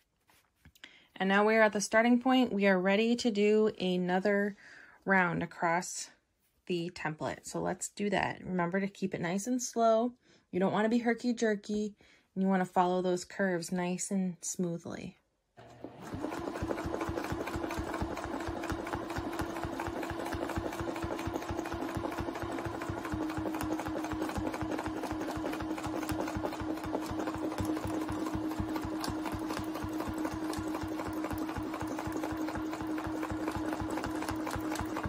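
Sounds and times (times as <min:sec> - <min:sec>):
sewing machine motor whine: 0:15.6 - 0:35.0
sewing machine needle strokes: 0:15.6 - 0:35.0.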